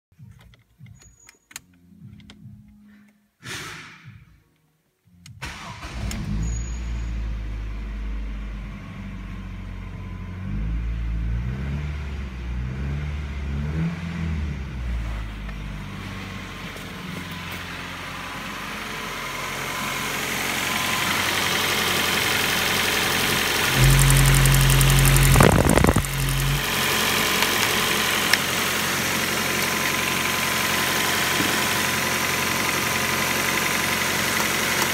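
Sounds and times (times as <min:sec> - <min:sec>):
car engine revving and idling: 0:05.4 - 0:34.9
starter motor whir: 0:23.7 - 0:31.9.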